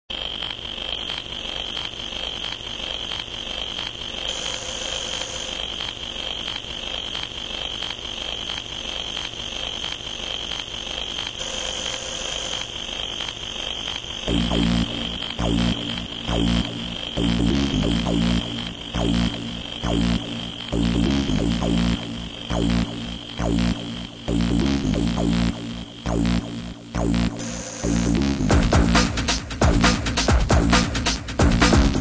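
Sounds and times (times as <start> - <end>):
faint regular ticks: 0.1 - 27.1
high-pitched electronic tone: 0.2 - 29.0
rapid beeping: 0.2 - 32.0
electronic music with heavy bass: 13.7 - 32.0.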